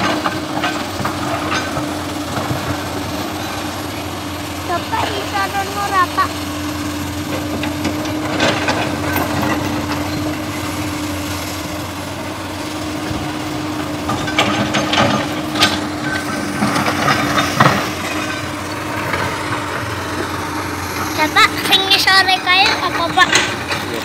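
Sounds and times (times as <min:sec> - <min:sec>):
excavator diesel engine humming: 0:00.0 - 0:24.0.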